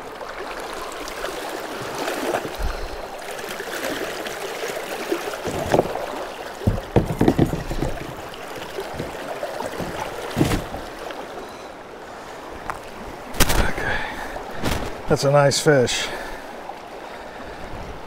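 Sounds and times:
stream water rushing: 0.0s - 18.0s
fish splashing against hull: 5.1s - 11.2s, 14.5s - 15.1s.

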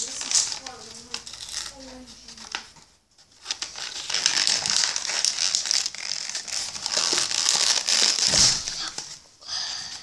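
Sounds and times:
plastic packaging crinkling: 0.0s - 2.7s, 3.3s - 9.2s.

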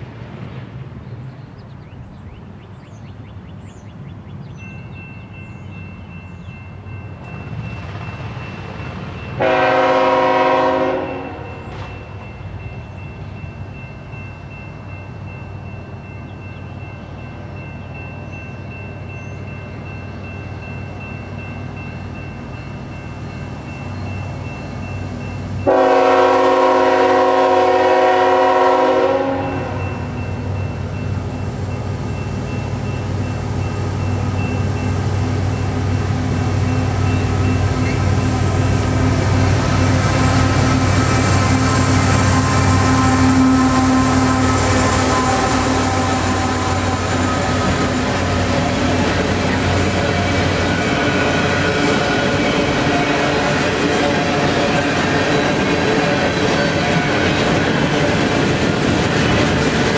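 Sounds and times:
locomotive engine rumble: 0.0s - 59.9s
locomotive horn: 9.4s - 11.9s, 25.6s - 30.1s, 37.6s - 58.1s.

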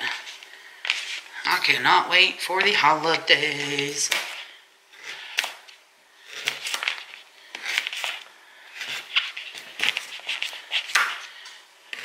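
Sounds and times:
knife cutting sweet potato: 6.2s - 8.2s.

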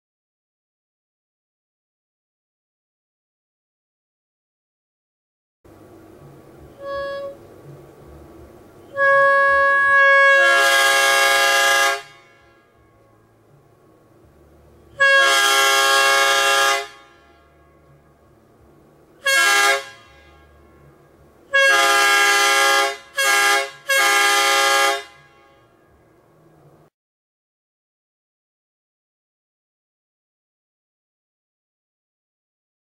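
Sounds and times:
train horn blasts: 6.2s - 7.8s, 8.8s - 13.6s, 14.9s - 18.3s, 19.2s - 26.2s.

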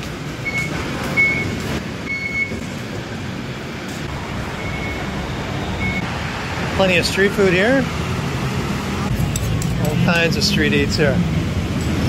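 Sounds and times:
station hubbub: 0.0s - 12.0s
short electronic beeps: 0.4s - 2.6s, 4.5s - 5.1s, 5.8s - 6.1s.

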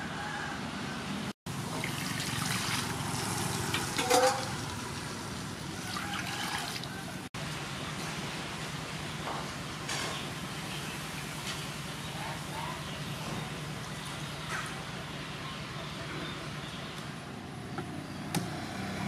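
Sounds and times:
water splashing in a metal basin: 1.6s - 6.9s.

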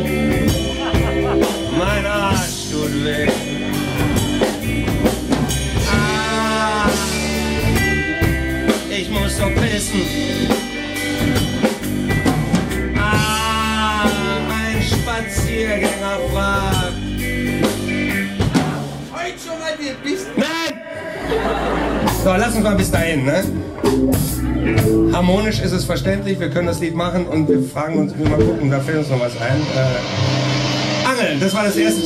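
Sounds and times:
live band playing blues rock: 0.0s - 19.2s, 21.2s - 32.0s
person singing long notes: 5.8s - 8.2s.

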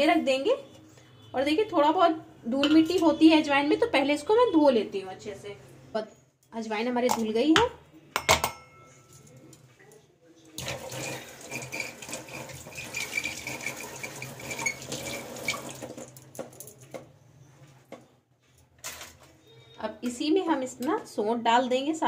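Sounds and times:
kitchen tap running: 10.6s - 16.5s.

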